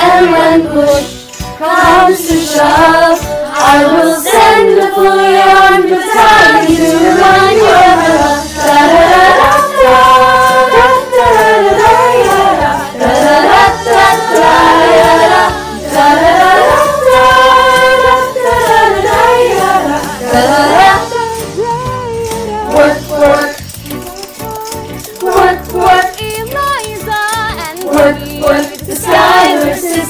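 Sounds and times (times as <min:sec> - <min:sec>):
youth choir singing wordless refrain: 0:00.0 - 0:30.0.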